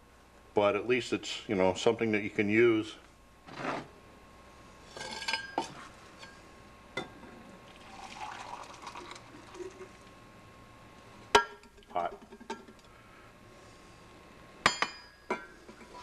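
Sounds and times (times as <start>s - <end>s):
water pouring into glass mug: 7.7s - 10.0s.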